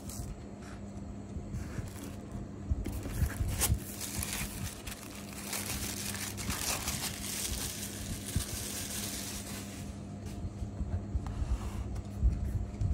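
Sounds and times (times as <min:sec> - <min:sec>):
plastic wrapper crinkling: 0:01.8 - 0:09.9.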